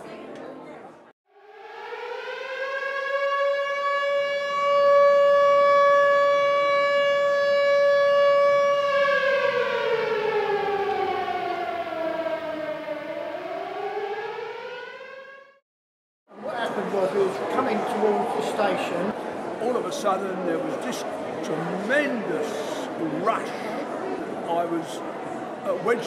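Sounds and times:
air-raid siren wailing: 1.3s - 15.6s.

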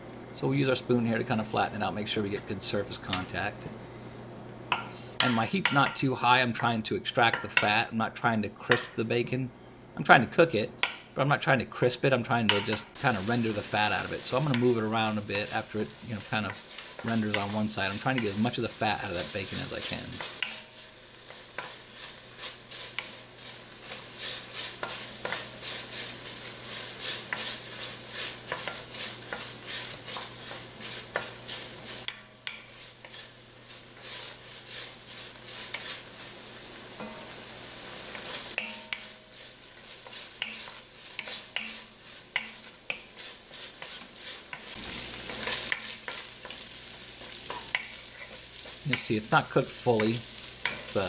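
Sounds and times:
bacon sizzling and crackling: 12.9s - 51.0s
wooden spoon scraping pan: 13.0s - 36.4s, 37.9s - 51.0s.

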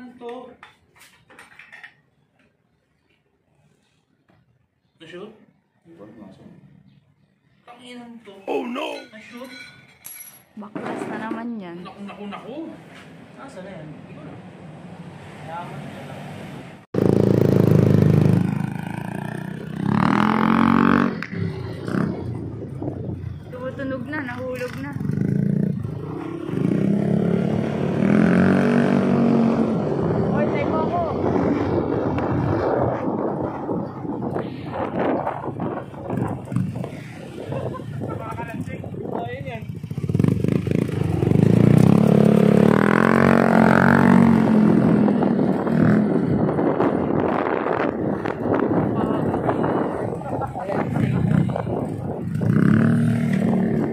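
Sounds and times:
scooter engine revving: 16.9s - 23.3s, 24.3s - 33.9s, 39.6s - 53.9s.

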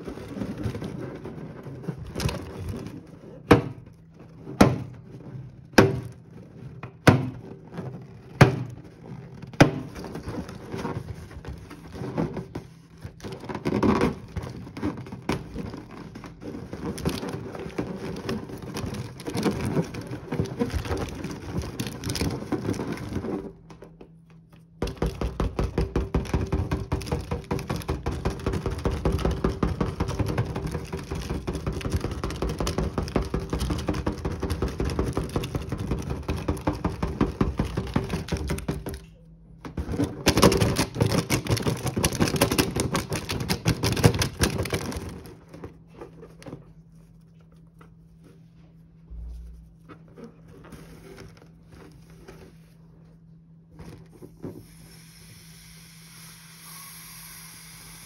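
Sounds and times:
mallet tapping on rubber balloon: 24.8s - 38.9s.

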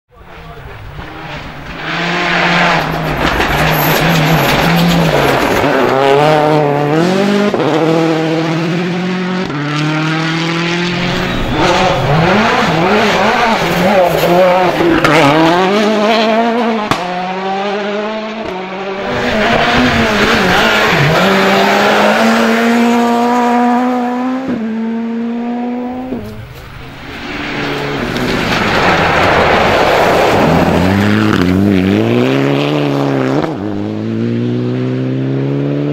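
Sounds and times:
rally car engines at full throttle: 0.1s - 35.9s
car sliding on gravel: 0.3s - 7.4s, 11.0s - 16.7s, 26.0s - 32.9s.

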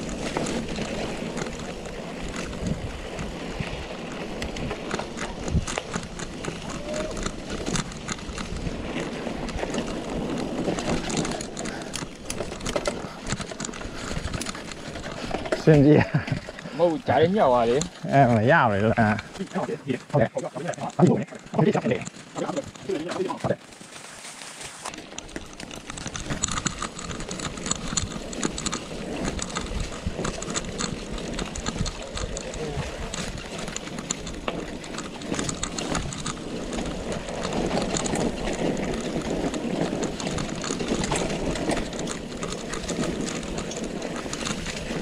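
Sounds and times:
wind buffeting microphone: 0.0s - 19.4s
mountain bike rattling: 0.0s - 45.0s
tyres rumbling on rough ground: 0.0s - 45.0s.

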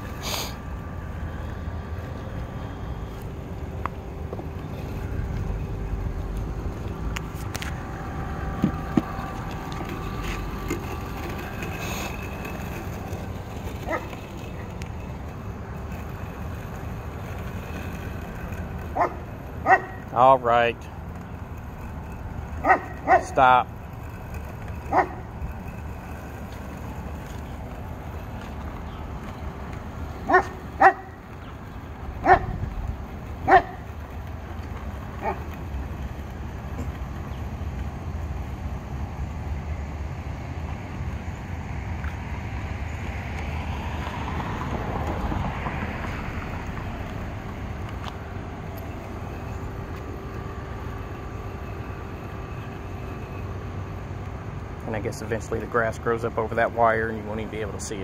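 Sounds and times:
low outdoor rumble: 0.0s - 58.0s
dog barking: 22.6s - 23.2s, 30.3s - 31.1s, 33.5s - 33.8s.

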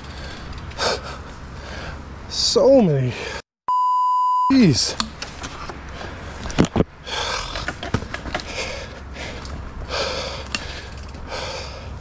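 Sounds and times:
bike clicking and rattling: 0.0s - 2.0s, 4.8s - 12.0s
person breathing hard: 0.0s - 2.1s, 5.9s - 7.7s, 8.4s - 12.0s.

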